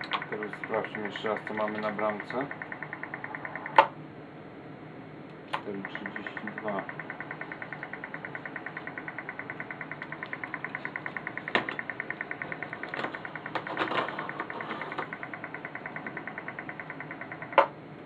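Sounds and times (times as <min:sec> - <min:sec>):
rapid pulsing: 0:00.0 - 0:04.0, 0:05.5 - 0:17.8
sharp clicks: 0:00.0 - 0:04.0, 0:05.5 - 0:17.8.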